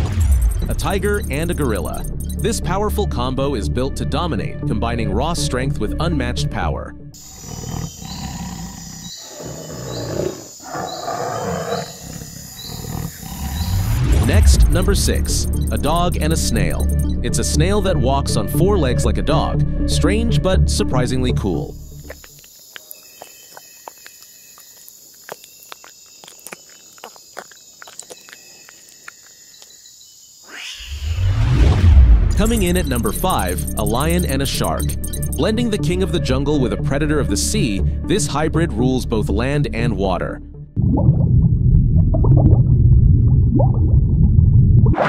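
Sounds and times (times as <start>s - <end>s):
insects trilling: 7.2s - 14.0s, 21.7s - 30.8s
big cat roars and growls: 7.2s - 14.2s
ticks and crackles on dry leaves: 22.1s - 29.8s
rising swoosh: 30.5s - 32.8s.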